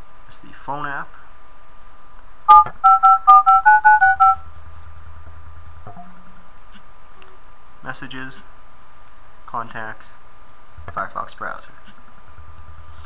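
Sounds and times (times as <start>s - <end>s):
keypad two-tone beeps: 2.5s - 4.4s.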